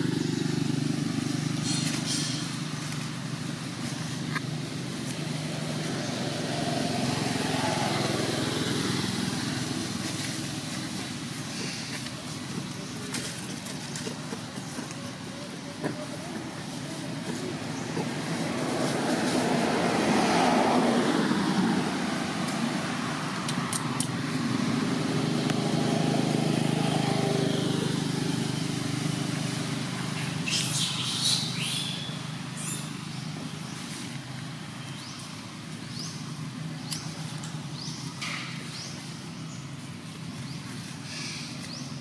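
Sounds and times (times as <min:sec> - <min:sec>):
outdoor background noise: 0:00.0 - 0:42.0
vehicle engine running: 0:00.0 - 0:42.0.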